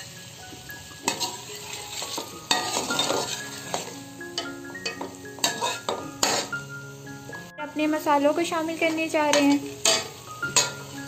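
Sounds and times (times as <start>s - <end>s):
light sizzle: 0.0s - 11.0s
spoon clinking against metal pot: 1.0s - 6.5s, 9.3s - 10.9s
spoon stirring food in a pot: 1.0s - 6.6s, 9.3s - 11.0s.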